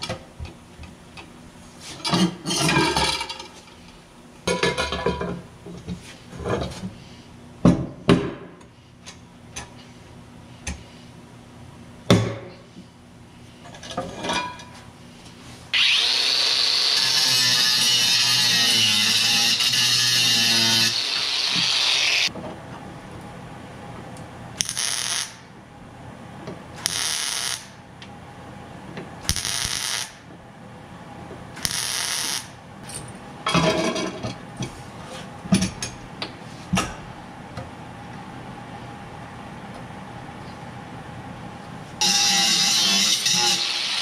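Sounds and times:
angle grinder on sheet metal: 0:15.8 - 0:22.3, 0:42.0 - 0:44.0.

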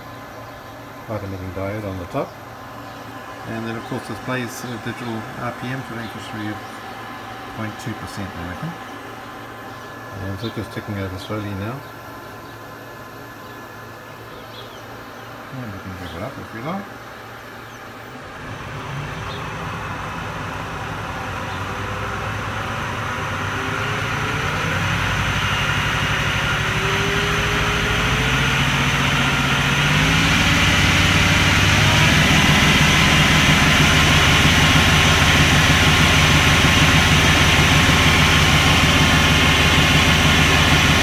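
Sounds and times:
lathe motor whine: 0:18.2 - 0:41.0.

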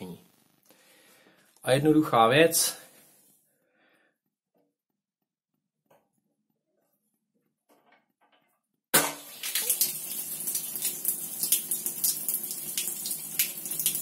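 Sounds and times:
water splashing onto tiled floor: 0:09.0 - 0:14.0.

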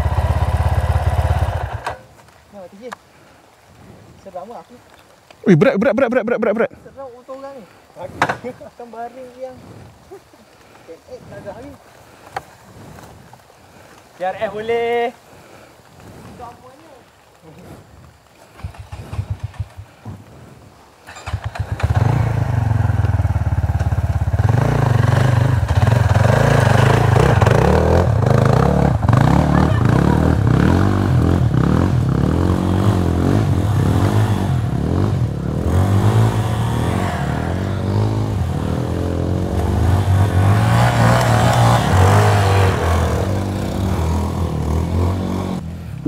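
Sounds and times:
motorcycle engine revving: 0:00.0 - 0:02.0, 0:18.5 - 0:19.8, 0:21.1 - 0:46.0.

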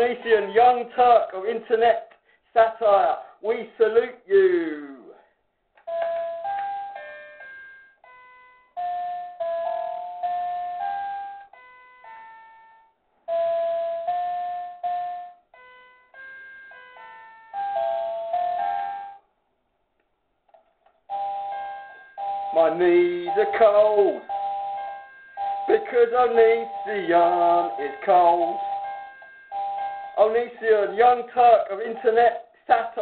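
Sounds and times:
bell-like chiming melody: 0:05.9 - 0:19.2, 0:21.1 - 0:32.4.

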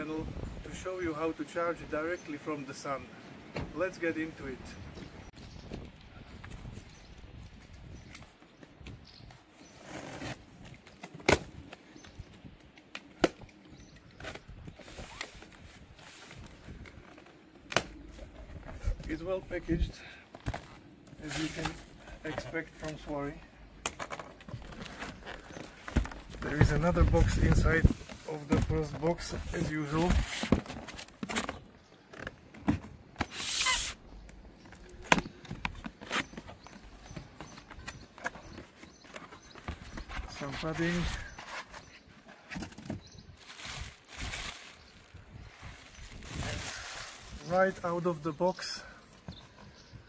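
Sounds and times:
cardboard flaps rubbing and creaking: 0:13.2 - 0:19.8, 0:20.4 - 0:23.4, 0:24.0 - 0:48.2
tape tearing off box: 0:33.2 - 0:34.0.

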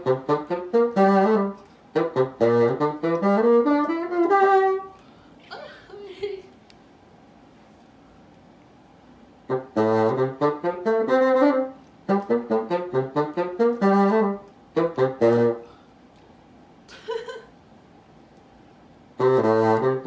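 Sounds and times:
bassoon playing quick notes: 0:00.0 - 0:05.0, 0:09.5 - 0:15.7, 0:19.2 - 0:20.0.

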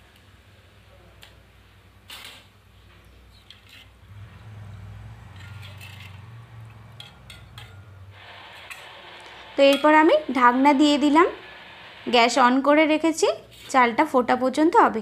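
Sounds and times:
steady low hum: 0:04.1 - 0:13.2.

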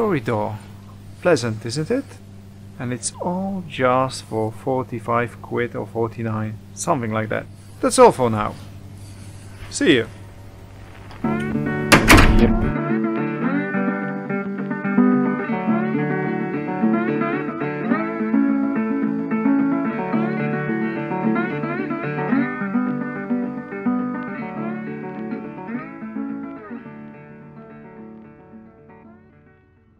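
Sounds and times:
plucked acoustic guitar music: 0:11.2 - 0:29.5.

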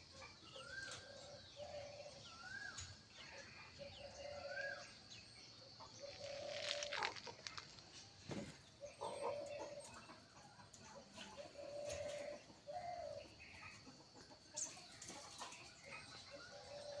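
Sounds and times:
small birds chirping: 0:00.0 - 0:17.0
hen clucking: 0:05.8 - 0:07.8.

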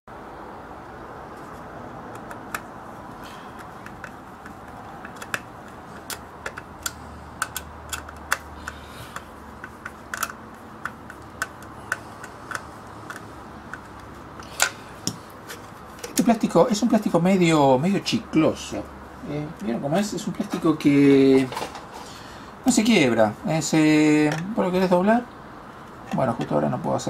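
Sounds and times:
screwdriver clicks: 0:03.6 - 0:15.2.

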